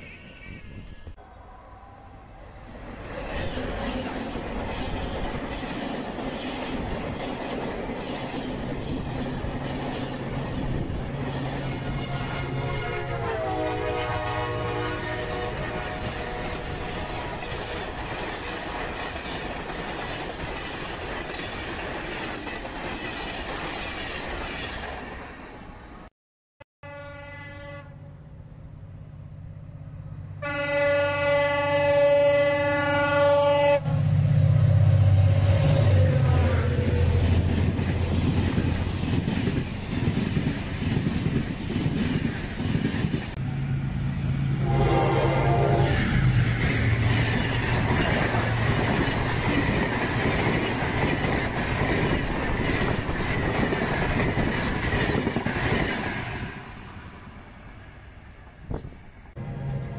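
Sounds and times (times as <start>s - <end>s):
train rumbling past: 0.0s - 26.1s, 26.9s - 59.9s
train horn blast: 11.7s - 17.3s, 26.8s - 28.2s, 30.4s - 37.4s, 44.5s - 46.2s.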